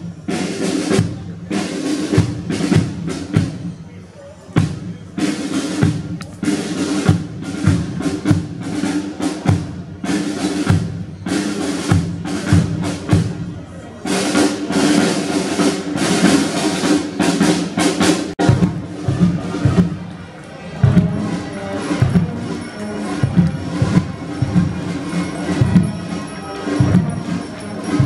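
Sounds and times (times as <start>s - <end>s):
marching brass band: 0.0s - 28.0s
snare drum beat: 14.1s - 20.0s
bass drum beat: 18.4s - 20.0s.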